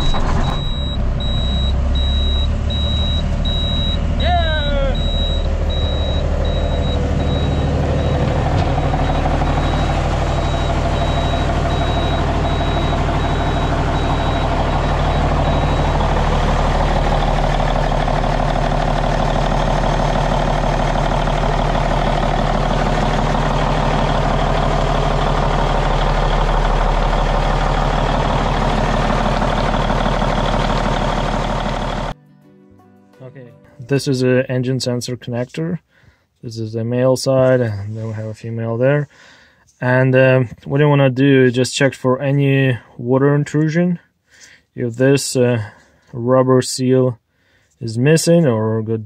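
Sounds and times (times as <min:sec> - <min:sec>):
diesel truck engine running: 0:00.0 - 0:32.2
high warning beep: 0:00.2 - 0:18.0.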